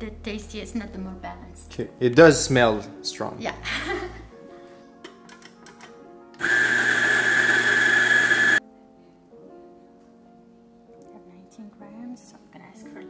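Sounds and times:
electric coffee grinder grinding: 0:06.4 - 0:08.6.

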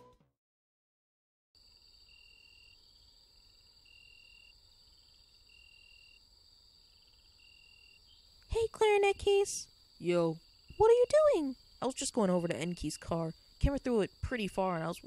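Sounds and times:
crickets pulsing lower trill: 0:01.6 - 0:08.4.

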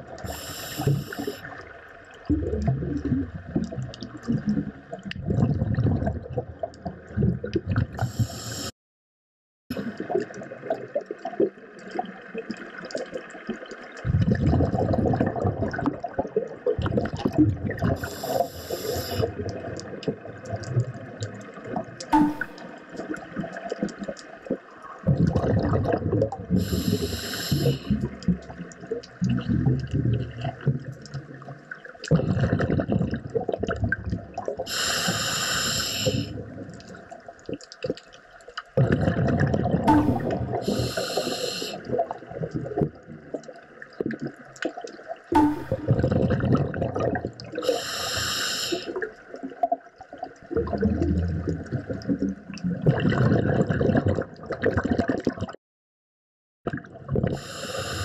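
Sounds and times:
exhaled air bubbling: 0:00.0 - 0:08.7, 0:09.7 - 0:55.6, 0:56.7 - 0:58.0
regulator inhale hisses: 0:00.2 - 0:01.5, 0:08.0 - 0:08.8, 0:18.0 - 0:19.3, 0:26.6 - 0:28.0, 0:34.7 - 0:36.4, 0:40.0 - 0:41.9, 0:47.6 - 0:49.0, 0:57.4 - 0:58.0.

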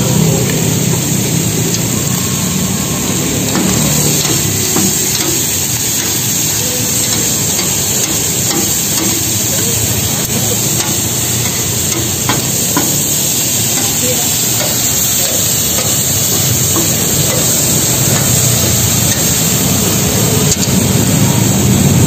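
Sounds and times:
octopus sizzling on a griddle: 0:00.0 - 0:22.0
metal spatula and tongs scraping: 0:03.4 - 0:20.8.

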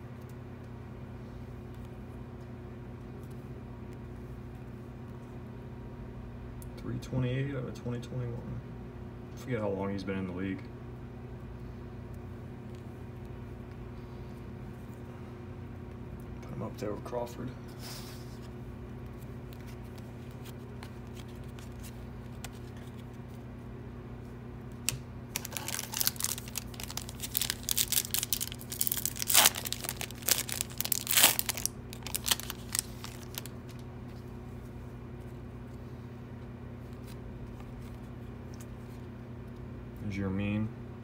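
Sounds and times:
foil wrapper tearing and crinkling: 0:24.8 - 0:33.9.

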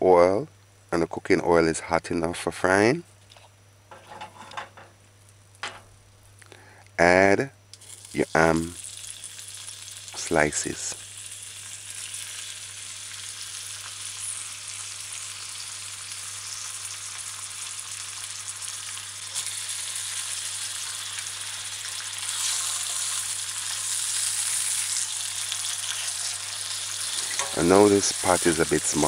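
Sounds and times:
ham sizzling in oil: 0:07.7 - 0:29.0.

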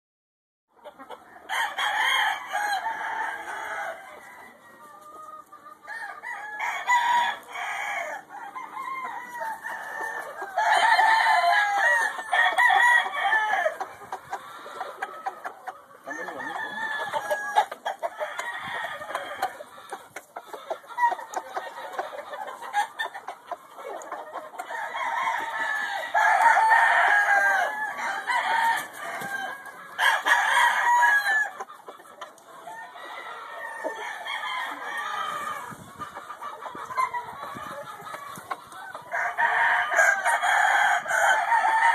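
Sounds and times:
hens clucking: 0:00.7 - 0:41.9
rooster crowing: 0:01.5 - 0:04.6, 0:05.9 - 0:13.8, 0:16.1 - 0:19.6, 0:24.7 - 0:31.6, 0:32.7 - 0:35.7, 0:39.1 - 0:41.9.

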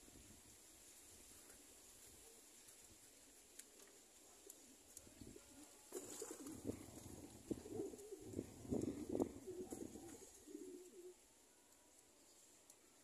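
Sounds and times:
pigeons cooing: 0:03.8 - 0:11.3.

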